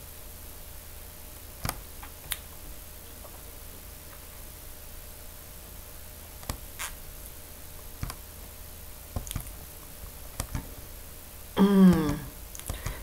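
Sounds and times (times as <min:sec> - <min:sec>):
low background hum: 0:00.0 - 0:13.0
computer mouse clicks: 0:06.4 - 0:06.6, 0:08.0 - 0:08.2, 0:09.2 - 0:09.6, 0:10.4 - 0:10.7, 0:12.6 - 0:13.0.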